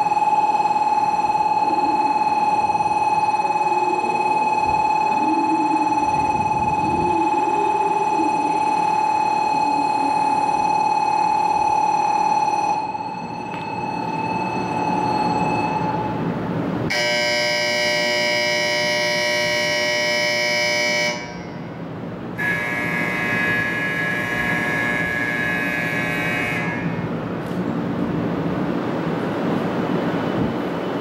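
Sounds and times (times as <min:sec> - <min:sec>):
long steady warning tones: 0:00.0 - 0:31.0
train rushing: 0:23.1 - 0:31.0.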